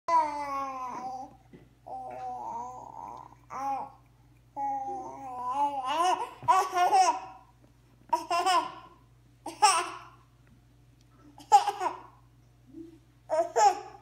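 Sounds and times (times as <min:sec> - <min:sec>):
baby laughing and babbling: 0:00.1 - 0:04.0, 0:04.6 - 0:07.5, 0:08.1 - 0:10.2, 0:11.4 - 0:12.2, 0:13.3 - 0:14.0.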